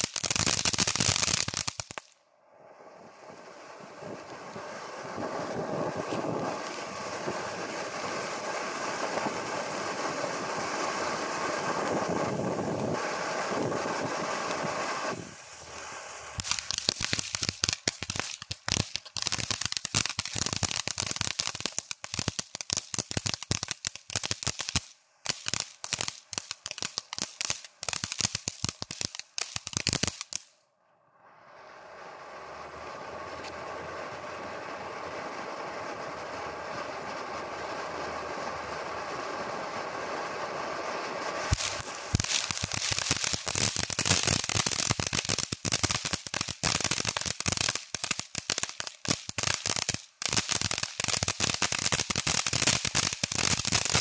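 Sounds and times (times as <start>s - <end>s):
firework fountain hissing: 0.0s - 54.0s
steady rushing noise: 2.2s - 17.6s, 31.0s - 43.9s
rapid crackling pops: 3.3s - 30.5s, 40.8s - 54.0s.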